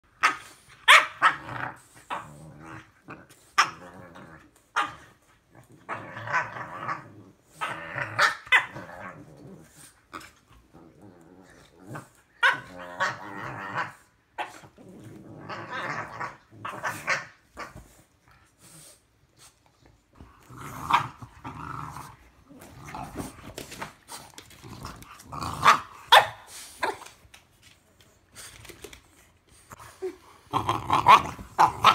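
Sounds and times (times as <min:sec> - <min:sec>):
puppies growling: 0:01.0 - 0:17.9, 0:20.1 - 0:26.2, 0:29.9 - 0:31.9.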